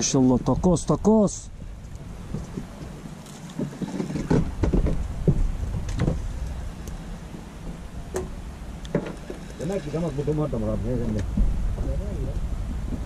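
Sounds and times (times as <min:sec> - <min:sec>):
steady low rumble: 0:00.0 - 0:13.0
knocks and thumps: 0:03.6 - 0:06.3, 0:07.3 - 0:09.5, 0:11.2 - 0:11.9.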